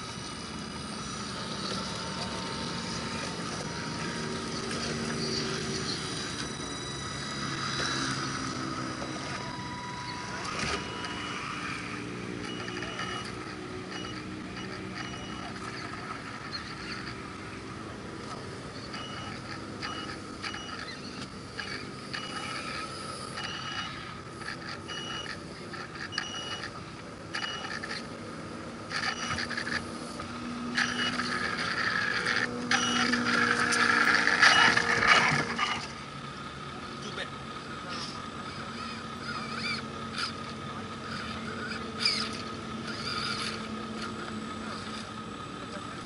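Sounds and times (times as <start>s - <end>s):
toy truck electric motor whining: 0.0s - 36.4s, 37.0s - 46.0s
gear rattle: 18.3s - 28.1s, 28.9s - 36.0s.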